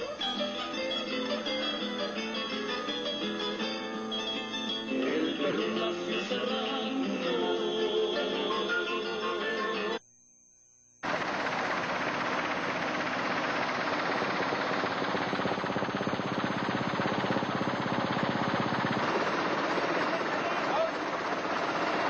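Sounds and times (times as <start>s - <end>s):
music: 0.0s - 10.0s
helicopter rotor chopping: 11.0s - 22.0s.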